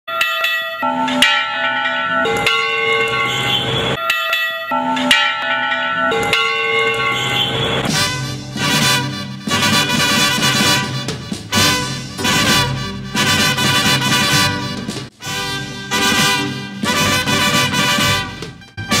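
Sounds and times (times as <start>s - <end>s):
church bells chiming a tune: 0.1s - 8.4s
music: 7.9s - 19.0s.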